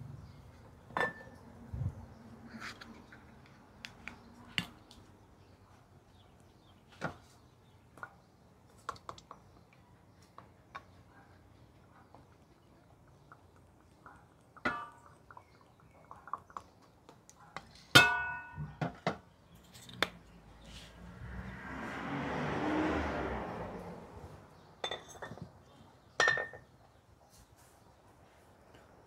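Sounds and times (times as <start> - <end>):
pots and dishes clinking: 1.0 - 1.4, 14.6 - 15.4, 17.9 - 19.2, 24.8 - 25.4, 26.2 - 26.6.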